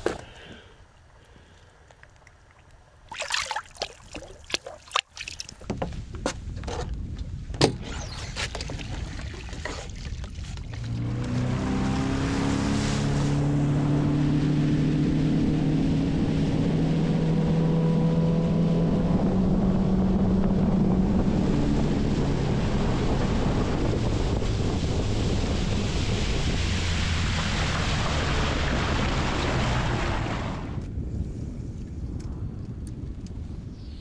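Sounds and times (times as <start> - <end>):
water rushing along hull: 1.8 - 5.9, 8.0 - 30.8
wind buffeting microphone: 5.5 - 12.3, 18.5 - 34.0
outboard motor running: 8.5 - 16.6.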